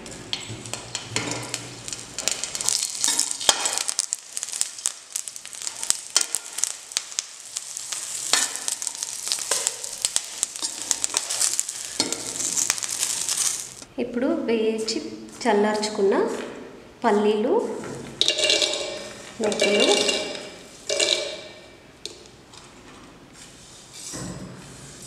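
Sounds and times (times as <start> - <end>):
chillies sizzling in hot oil: 0.0 - 13.9, 18.1 - 21.8
metal spatula scraping pan: 7.7 - 13.6, 18.2 - 21.6.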